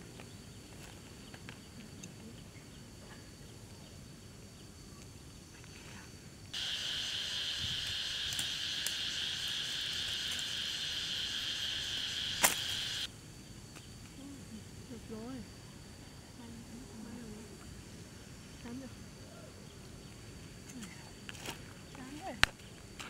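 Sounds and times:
insect chorus: 0.0s - 23.0s
slingshot snap: 12.4s - 12.8s.

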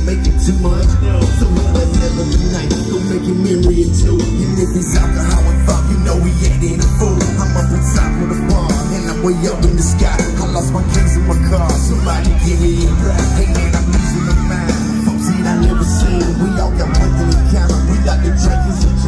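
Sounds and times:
live country-rap band playing: 0.0s - 19.0s.

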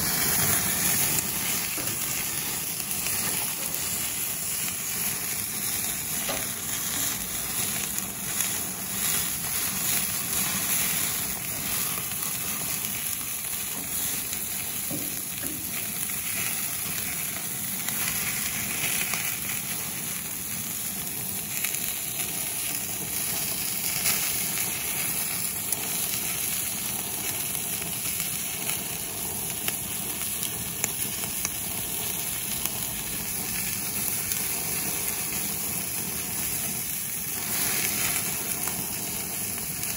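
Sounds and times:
octopus sizzling on a grill: 0.0s - 39.9s.

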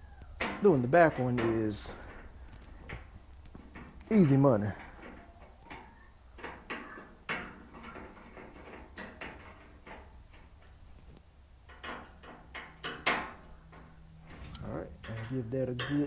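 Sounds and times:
sharp metal knocks: 11.7s - 14.0s, 14.6s - 16.0s.

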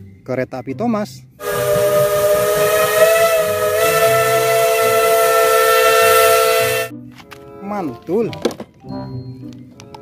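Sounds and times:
steam hissing: 1.4s - 6.9s
steam locomotive chime whistle: 1.4s - 6.9s.

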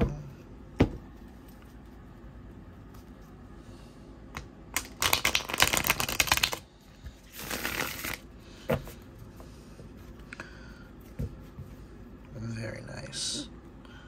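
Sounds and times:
cards riffle shuffling: 4.8s - 6.6s, 7.2s - 8.3s.

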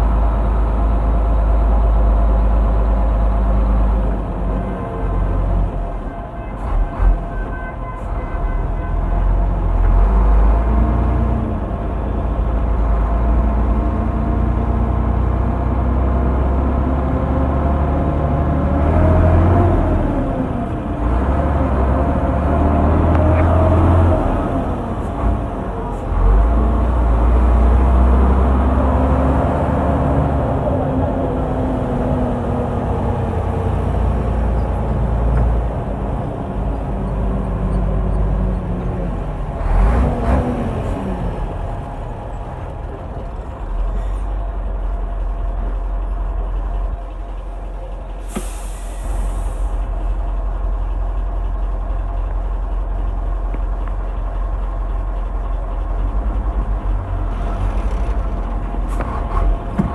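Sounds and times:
truck diesel engine running: 0.0s - 7.6s, 8.8s - 59.9s
compressed air hiss: 48.2s - 49.8s.

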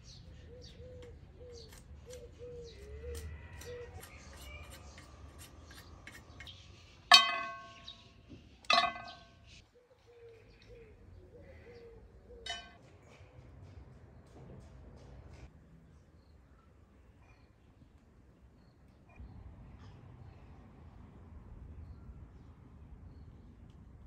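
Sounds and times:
bird chirping: 0.0s - 13.2s
sticks clinking on ceramic plate: 7.1s - 8.0s, 8.7s - 9.4s, 12.5s - 12.8s.

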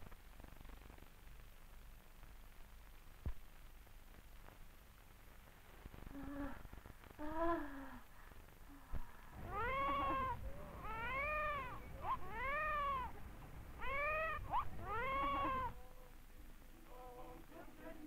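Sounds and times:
newborn baby crying: 9.4s - 13.2s, 13.8s - 15.8s.

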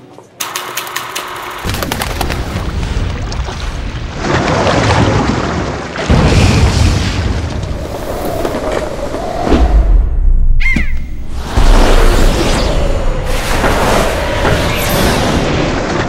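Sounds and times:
heavy boom: 6.1s - 7.8s.

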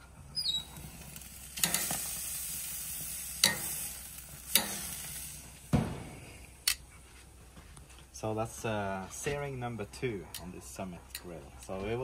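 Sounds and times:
steak sizzling on grill: 0.3s - 6.7s
metal tongs clicking on grate: 1.6s - 2.1s, 3.4s - 3.8s, 4.5s - 4.9s
grill lid shutting thump: 5.7s - 6.2s.

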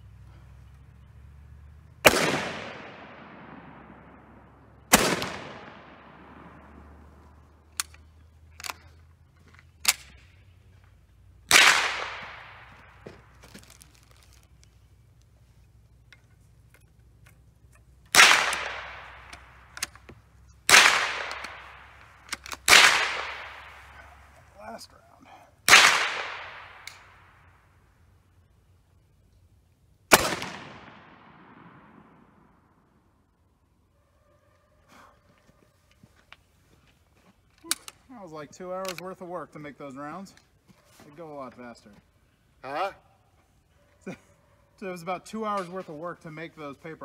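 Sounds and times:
faint sharp gunshot cracks: 2.0s - 4.2s, 4.9s - 6.8s, 11.5s - 13.0s, 18.1s - 19.9s, 20.7s - 23.8s, 25.7s - 27.2s, 30.1s - 32.4s
rifle shots echoing: 2.0s - 8.8s, 11.5s - 13.4s, 18.1s - 20.0s, 20.6s - 24.3s, 25.7s - 27.6s, 30.1s - 33.0s.

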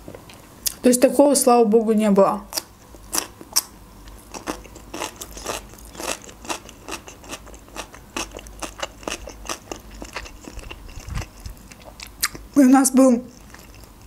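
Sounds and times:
chewing cucumber crunches: 2.5s - 12.6s, 13.3s - 14.0s.

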